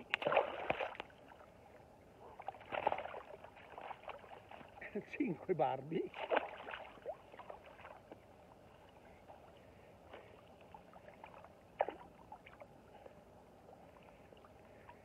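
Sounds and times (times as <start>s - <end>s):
fish splashing in water: 0.0s - 1.4s, 2.3s - 4.9s, 6.1s - 8.1s
steady river water: 0.0s - 15.0s.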